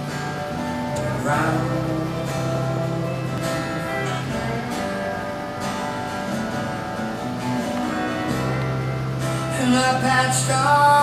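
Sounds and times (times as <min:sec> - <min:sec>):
strummed acoustic guitar: 0:00.0 - 0:11.0
person singing: 0:00.9 - 0:05.3, 0:09.5 - 0:11.0.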